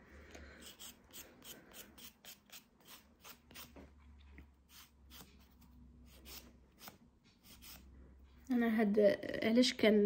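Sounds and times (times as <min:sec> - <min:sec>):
nail file rasping: 0:00.6 - 0:03.8.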